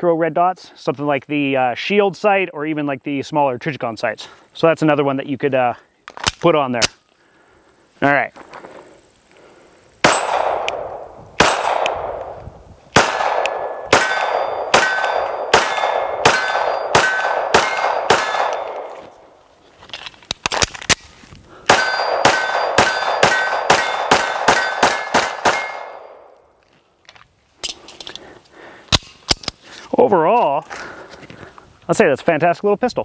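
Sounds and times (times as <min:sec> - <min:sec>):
metallic clicks of gun handling: 0:06.0 - 0:07.1, 0:19.9 - 0:21.2, 0:27.0 - 0:28.3, 0:28.9 - 0:29.6
steel targets ringing: 0:10.0 - 0:10.5, 0:13.0 - 0:18.8, 0:21.7 - 0:26.2
pistol shots: 0:10.0 - 0:12.3, 0:12.9 - 0:18.9, 0:21.7 - 0:26.3.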